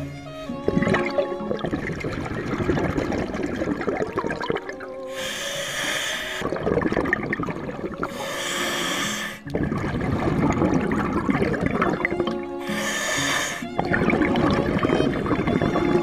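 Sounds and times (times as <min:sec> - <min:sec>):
bubbling exhales underwater: 0:00.6 - 0:16.0
regulator hissing inhale: 0:05.1 - 0:06.6, 0:08.0 - 0:09.5, 0:12.6 - 0:13.8.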